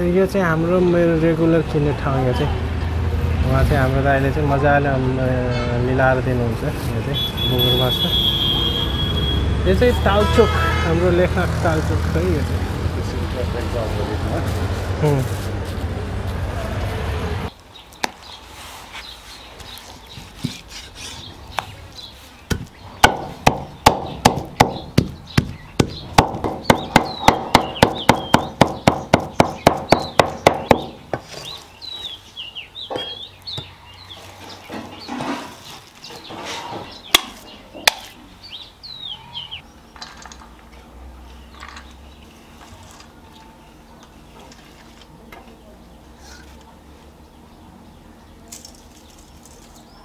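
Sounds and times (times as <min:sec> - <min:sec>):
small birds chirping: 0:17.5 - 0:40.5
cleaver chopping on wooden block: 0:22.5 - 0:31.3.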